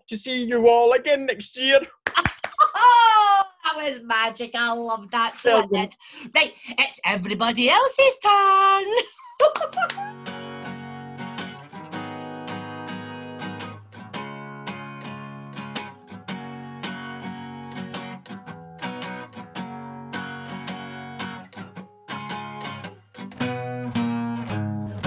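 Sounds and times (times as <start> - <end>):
acoustic guitar strummed chords: 10.1 - 25.0.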